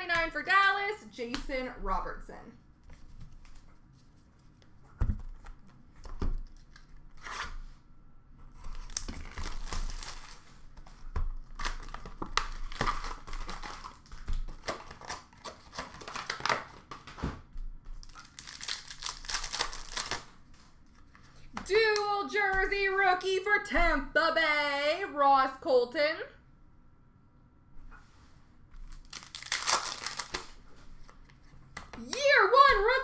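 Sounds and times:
wrappers tearing and crinkling: 0:08.5 - 0:10.7, 0:11.4 - 0:16.9, 0:18.0 - 0:20.4, 0:28.9 - 0:31.2.

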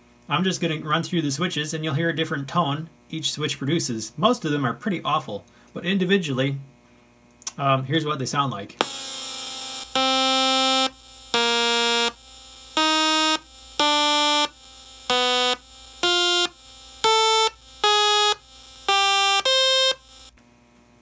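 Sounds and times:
harsh electronic buzzing tones: 0:08.8 - 0:20.4.

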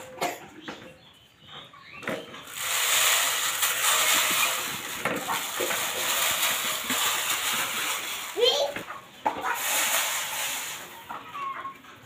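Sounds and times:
grains pouring rattling hiss: 0:02.4 - 0:08.7, 0:09.4 - 0:11.2.

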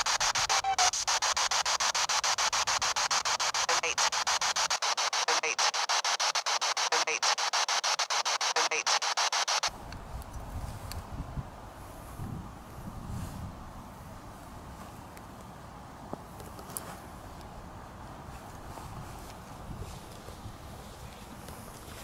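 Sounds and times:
pulsing radio static: 0:00.0 - 0:09.7
replayed voice fragment: 0:00.0 - 0:09.7
wind noise on microphone: 0:09.7 - 0:14.8, 0:18.4 - 0:22.0.

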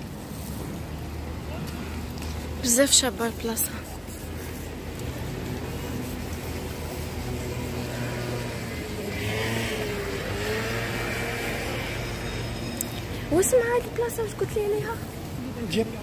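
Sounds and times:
car driving past: 0:07.1 - 0:13.3.

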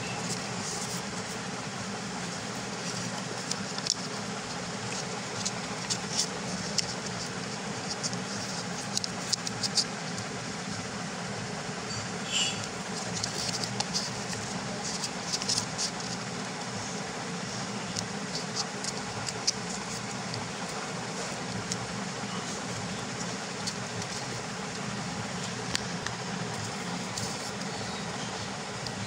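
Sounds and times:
paper being folded and creased: 0:00.0 - 0:10.8, 0:12.6 - 0:29.0
steady background hum: 0:00.0 - 0:29.0.

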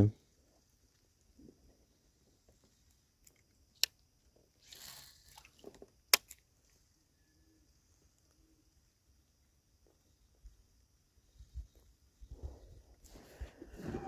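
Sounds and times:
sharp clicks of fishing gear: 0:04.6 - 0:06.5.

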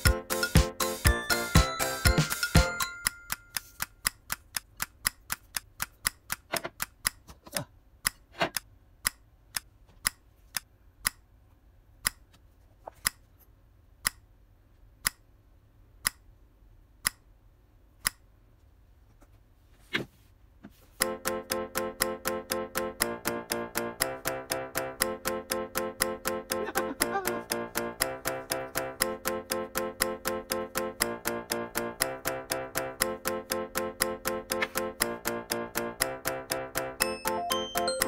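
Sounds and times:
sharp ticks: 0:00.0 - 0:07.2, 0:21.0 - 0:38.0.

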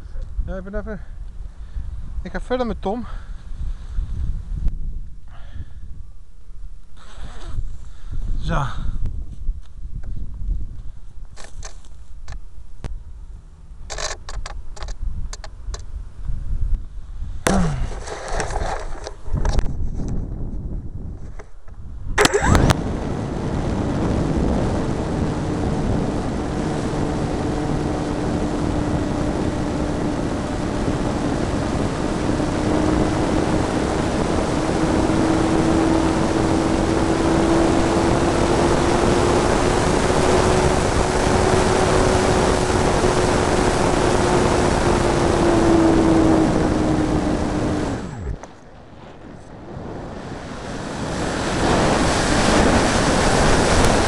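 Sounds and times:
airflow rush: 0:22.2 - 0:54.0
electric motor and propeller whine: 0:22.2 - 0:54.0.

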